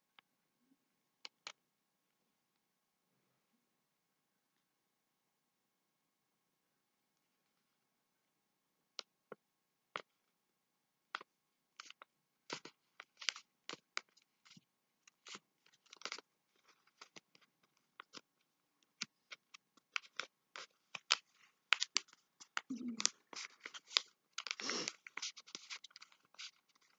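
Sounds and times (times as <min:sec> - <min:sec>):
paper crinkling: 0:11.8 - 0:18.2, 0:18.9 - 0:26.9.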